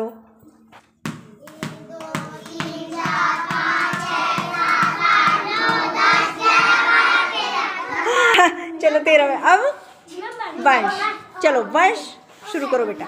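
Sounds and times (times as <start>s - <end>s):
ball bouncing: 0.7s - 7.0s
children counting in unison: 1.6s - 8.2s.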